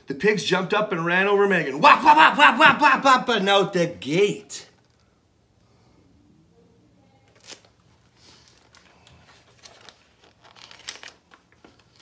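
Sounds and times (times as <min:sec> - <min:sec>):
book pages rustling: 0:07.3 - 0:12.0.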